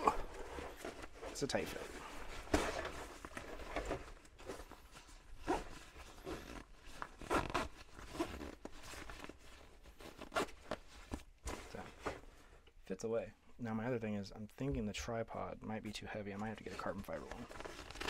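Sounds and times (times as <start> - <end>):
fabric rustling: 0.0 - 12.6
zipper being pulled: 5.4 - 9.4.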